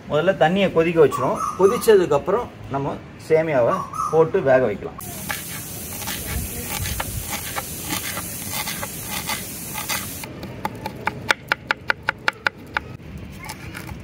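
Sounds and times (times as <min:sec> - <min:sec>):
steady hiss: 0:05.0 - 0:10.3
knife chopping on wooden board: 0:05.2 - 0:12.9.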